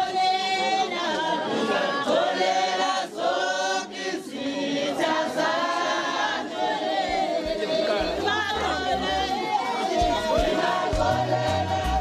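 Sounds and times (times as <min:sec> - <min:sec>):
crowd singing unaccompanied: 0:00.0 - 0:12.0.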